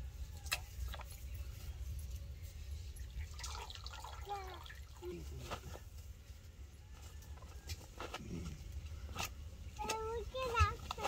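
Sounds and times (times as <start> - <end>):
water splashing and dripping: 3.1 - 5.3.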